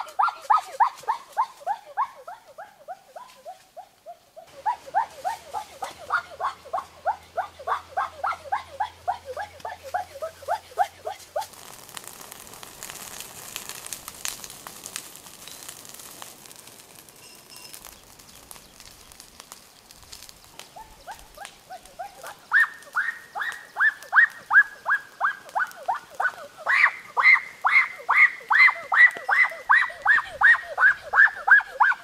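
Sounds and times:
faint hiss with crackles: 0.0s - 32.0s
animal crying out: 4.5s - 11.6s, 20.8s - 32.0s.

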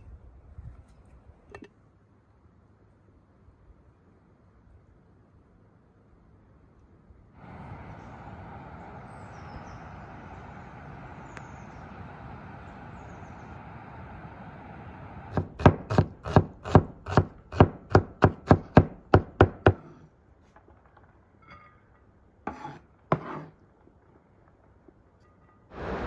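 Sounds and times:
steady rushing noise: 7.4s - 15.7s, 25.7s - 26.0s
knife chopping onion on wooden board: 15.3s - 20.0s, 22.5s - 23.5s.

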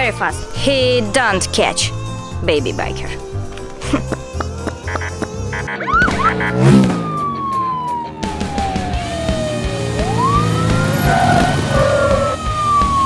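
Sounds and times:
background music with beat: 3.0s - 13.0s
police siren wailing: 5.6s - 13.0s.

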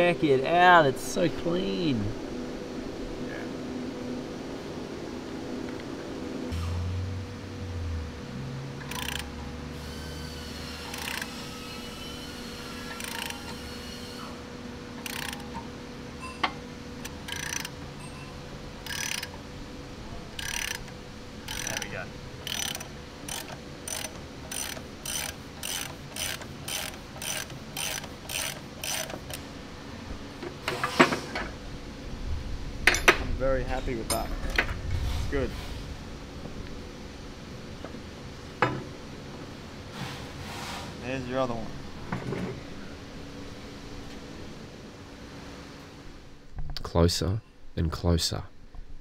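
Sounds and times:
socket ratchet clicking: 8.8s - 9.3s, 10.8s - 11.3s, 12.9s - 13.6s, 15.0s - 15.5s, 17.0s - 17.8s, 18.8s - 19.3s, 20.4s - 29.4s.

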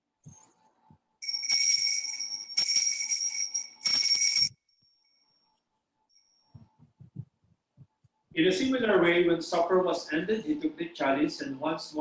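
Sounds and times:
altar bells jingling: 1.2s - 5.4s.

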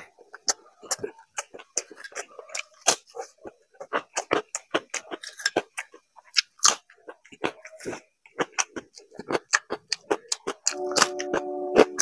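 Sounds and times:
chewing crunchy chips: 0.0s - 12.0s.

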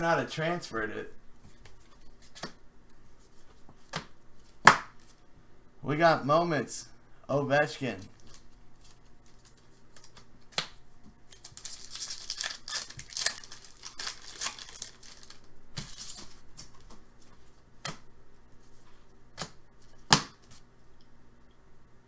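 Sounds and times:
wrapper tearing and crinkling: 11.3s - 16.3s.

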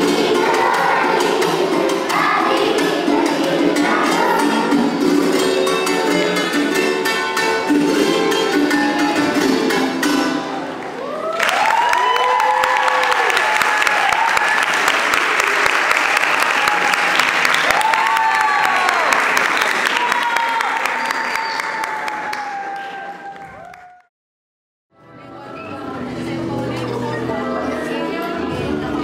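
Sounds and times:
children's choir singing: 0.0s - 7.1s, 26.8s - 29.0s
strummed string instrument: 0.0s - 10.8s
audience applause and cheering: 10.6s - 24.1s.

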